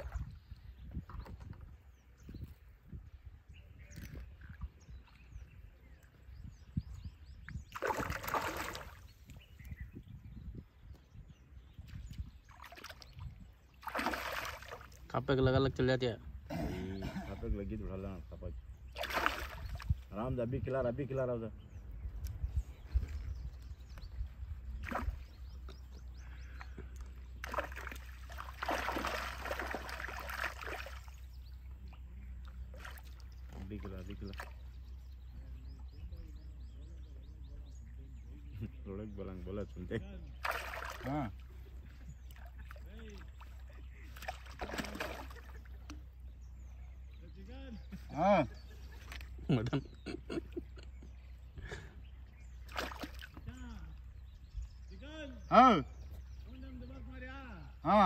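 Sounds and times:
wind rumble on microphone: 0.0 - 13.7, 19.5 - 26.8
fish splashing in water: 7.7 - 9.1, 12.5 - 15.0, 18.9 - 20.0, 27.3 - 31.3, 40.4 - 41.5, 42.3 - 45.9, 52.6 - 53.4.

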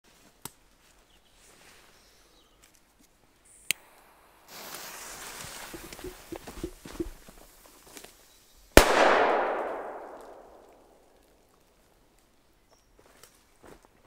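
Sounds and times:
firecracker fuse hissing: 3.4 - 8.3
footsteps through leaf litter: 4.5 - 5.8.

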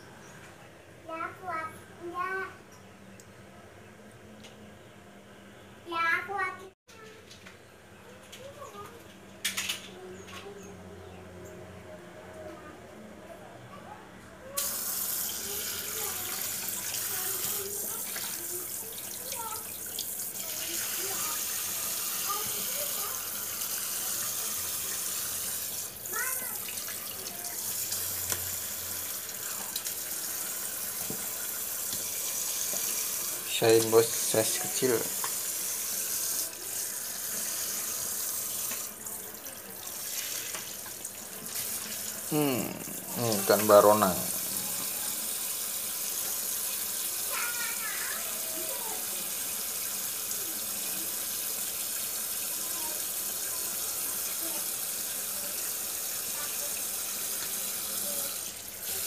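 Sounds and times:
tap water splashing into sink: 29.3 - 33.2, 35.0 - 35.6, 38.6 - 39.0, 39.8 - 42.2.

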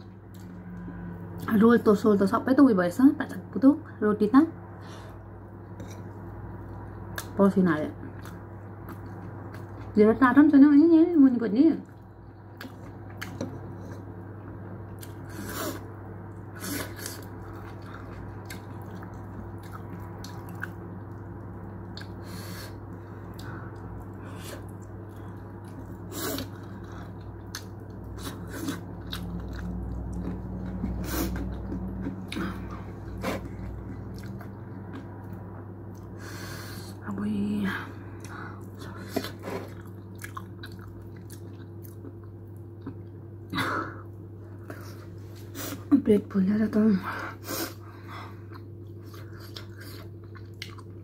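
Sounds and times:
low hum: 0.0 - 51.0
person chewing food: 5.6 - 7.3, 8.1 - 9.9, 11.9 - 14.2, 14.9 - 36.3, 38.1 - 43.2, 47.7 - 51.0.

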